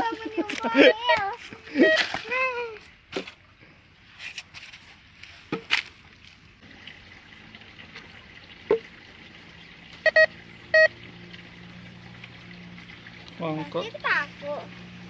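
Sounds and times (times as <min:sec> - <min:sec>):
metal detector beeps: 0:10.0 - 0:10.9.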